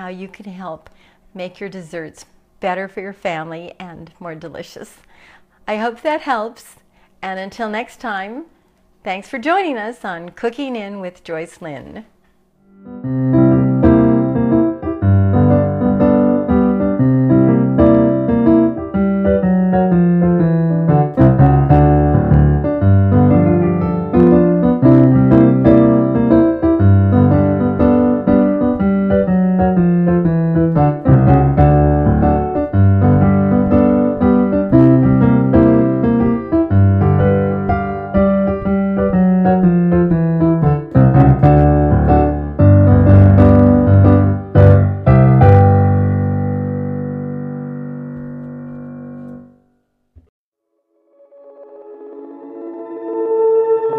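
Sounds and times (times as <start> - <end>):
piano music with bass line: 12.7 - 49.7, 51.3 - 53.9.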